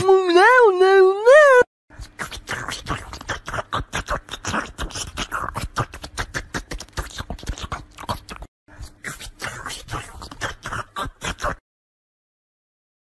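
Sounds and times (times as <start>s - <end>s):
kitten sucking and chewing: 1.9s - 11.6s.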